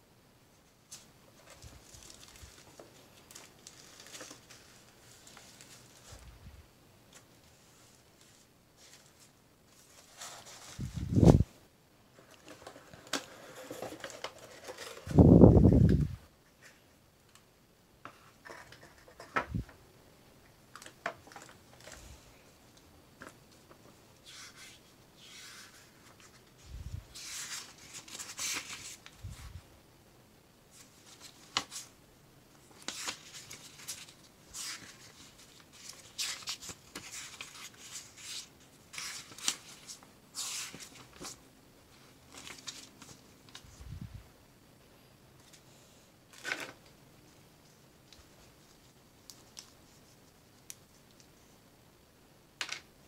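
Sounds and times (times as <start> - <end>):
paper pages rustling: 0.9 - 6.3, 7.1 - 11.4, 12.2 - 15.8, 23.2 - 29.6, 32.6 - 43.9.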